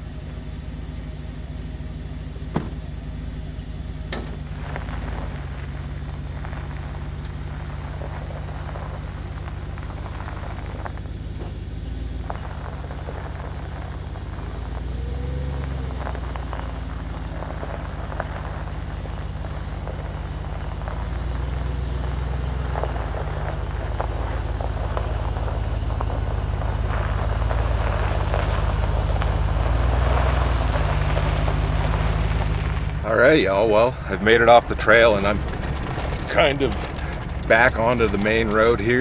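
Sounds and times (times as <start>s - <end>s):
pickup truck engine idling: 0.0s - 39.0s
tyres crunching on gravel: 0.0s - 39.0s
sharp knock: 2.5s - 2.8s.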